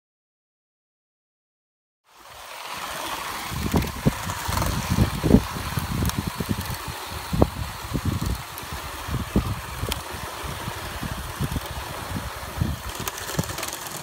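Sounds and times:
steady hiss: 2.1 - 14.0
wind buffeting microphone: 3.3 - 14.0.

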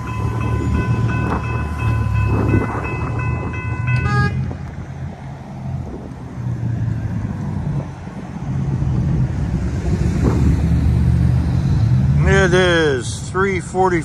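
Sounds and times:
crossing warning bell ringing: 0.0 - 4.7
road traffic rumble: 0.0 - 14.0.

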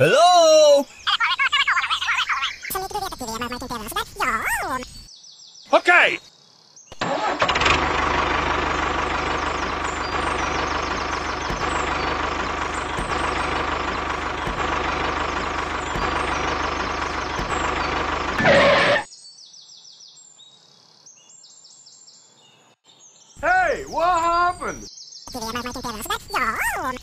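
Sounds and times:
birds chirping: 0.0 - 7.0, 8.0 - 27.0
tractor engine running: 7.0 - 19.1.

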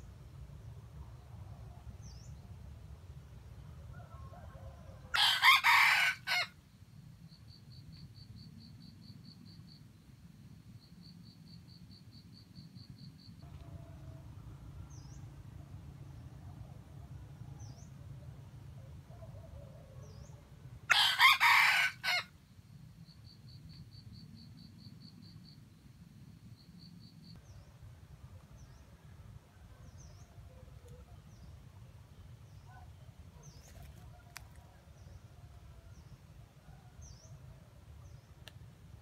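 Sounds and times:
rooster crowing: 3.9 - 6.6, 20.9 - 22.3.

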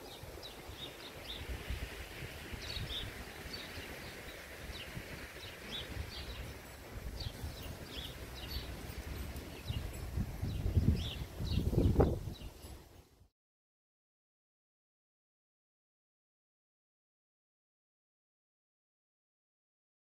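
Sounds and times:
small birds chirping: 0.0 - 13.1.

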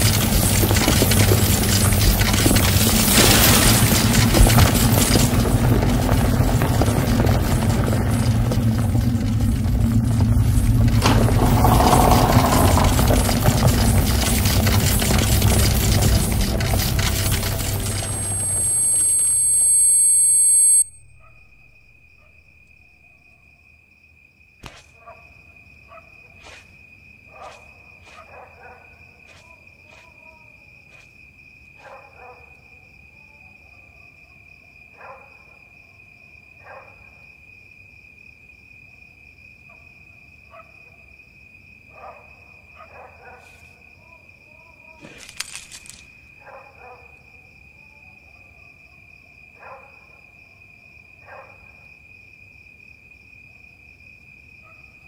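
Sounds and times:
crickets chirring: 0.0 - 55.0
loud sound cutting off: 8.1 - 19.9
brief rustle: 45.0 - 46.1.

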